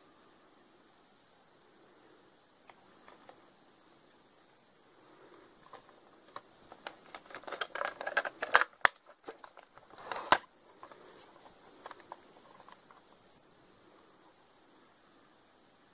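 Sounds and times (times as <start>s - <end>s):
faint hiss: 0.0s - 15.9s.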